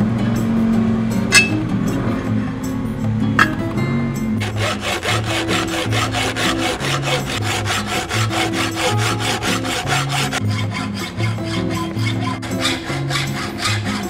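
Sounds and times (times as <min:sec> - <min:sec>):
hacksaw rasping on metal: 0:01.3 - 0:01.6, 0:04.4 - 0:14.0.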